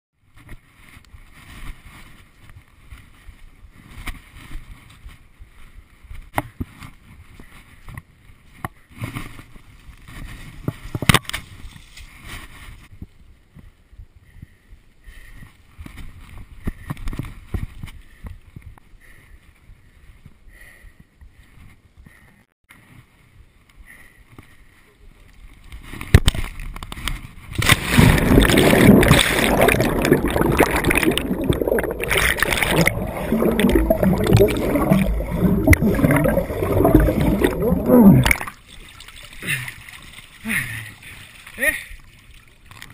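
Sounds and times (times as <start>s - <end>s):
rustling through undergrowth: 0.4s - 13.3s.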